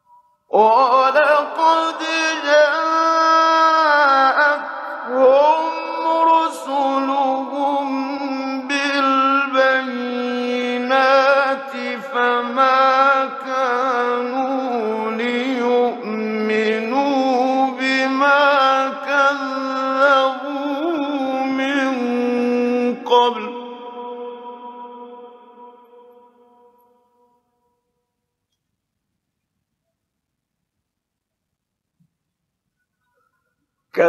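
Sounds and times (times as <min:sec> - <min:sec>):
man chanting melodically: 0:00.5 - 0:26.3.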